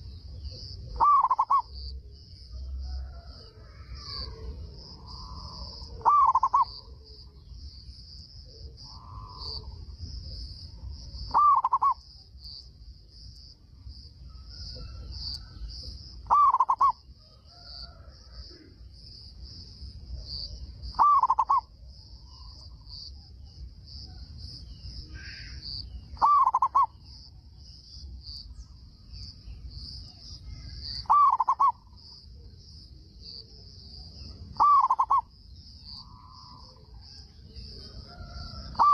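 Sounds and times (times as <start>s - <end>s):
dove cooing: 0.6s - 1.8s, 2.8s - 7.1s, 8.4s - 9.8s, 11.3s - 12.0s, 16.2s - 18.7s, 21.0s - 21.7s, 26.2s - 27.0s, 31.0s - 31.8s, 34.6s - 35.3s, 37.7s - 38.9s.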